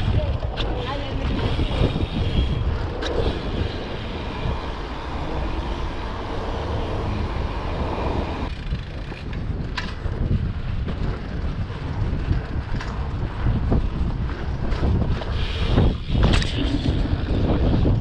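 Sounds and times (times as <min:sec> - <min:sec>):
wind buffeting microphone: 0:00.0 - 0:18.0
rushing noise: 0:01.2 - 0:08.5.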